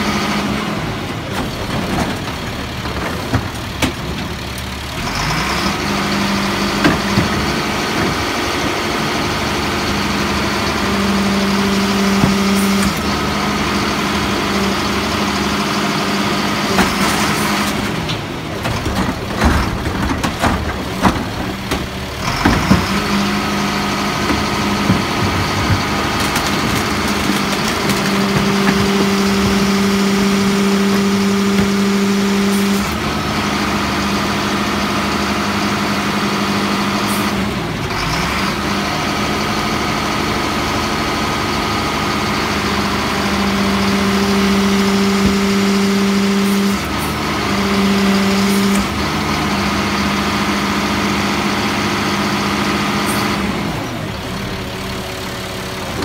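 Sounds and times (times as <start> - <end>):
diesel engine idling: 0.0 - 56.0
hydraulics running: 0.0 - 56.0.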